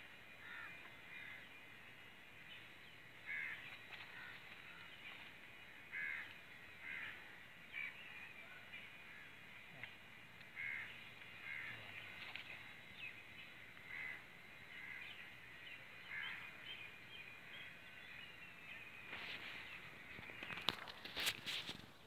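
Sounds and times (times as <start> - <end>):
bird chirping: 10.6 - 21.1.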